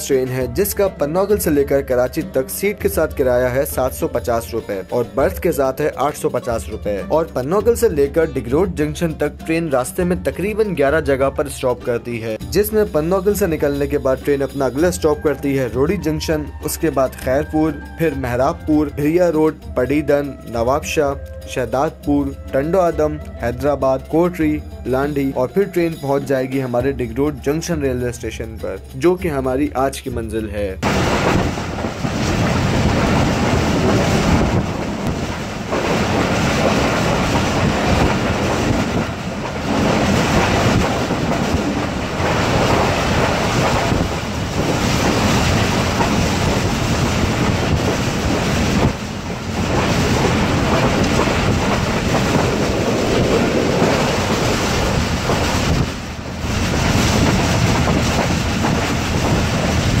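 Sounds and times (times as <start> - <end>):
train wheels rumbling on rails: 30.8 - 60.0
wind noise on microphone: 30.8 - 60.0.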